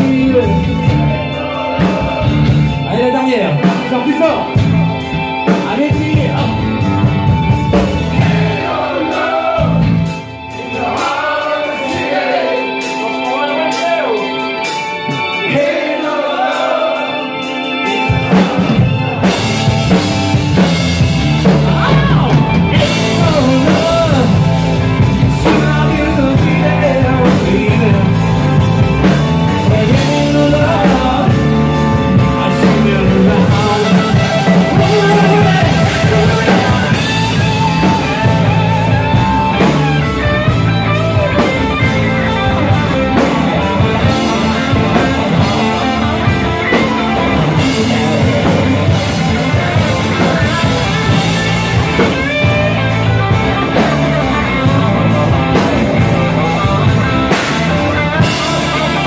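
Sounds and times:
person singing: 0:00.0 - 0:04.6, 0:10.5 - 0:20.0, 0:21.4 - 0:40.5, 0:41.1 - 0:52.8, 0:53.5 - 0:59.0
bass guitar: 0:00.0 - 0:59.0
drums: 0:00.0 - 0:59.0
electric guitar: 0:00.0 - 0:59.0.

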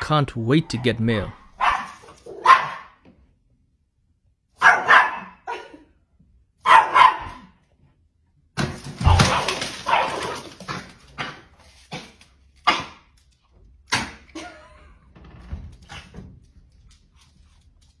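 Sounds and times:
small dog barking: 0:01.3 - 0:03.0, 0:04.6 - 0:05.7, 0:06.6 - 0:07.6, 0:09.1 - 0:10.4.

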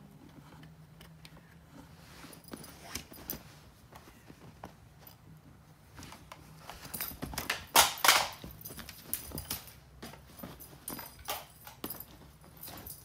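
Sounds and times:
cat scrabbling on bedding: 0:08.4 - 0:13.0.

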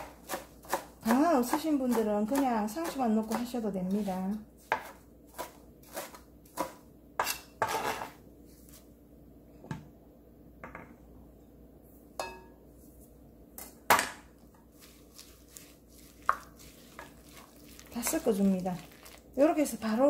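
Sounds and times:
knife on plastic cutting board: 0:03.9 - 0:08.2.

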